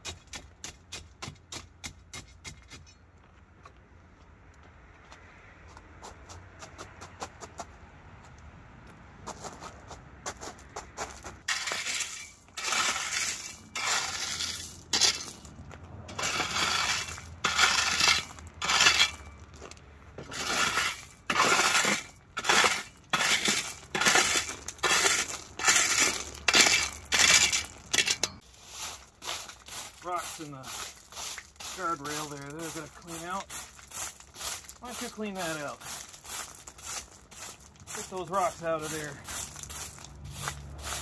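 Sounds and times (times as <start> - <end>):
ballast stones crunching and clinking: 11.4 - 41.0.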